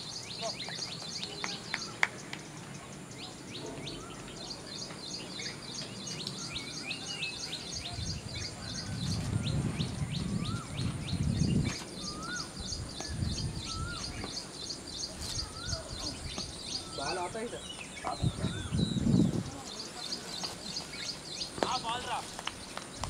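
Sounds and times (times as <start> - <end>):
small birds chirping: 0.0 - 23.0
falling whistle-like bird calls: 3.2 - 19.9.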